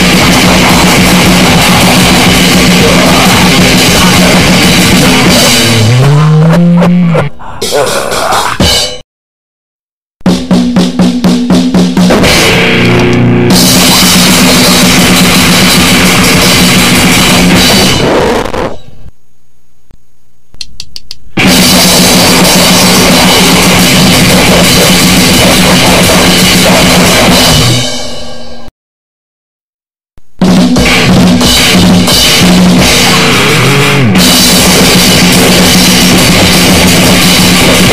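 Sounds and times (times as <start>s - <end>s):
rapid drum hits: 0.0s - 6.8s, 10.2s - 12.9s, 13.5s - 18.6s, 21.4s - 28.1s, 30.4s - 37.9s
distorted guitar and pounding drums: 0.0s - 9.0s, 10.2s - 19.0s, 21.4s - 28.4s, 30.4s - 37.9s
clicks: 12.8s - 13.3s, 20.5s - 21.2s.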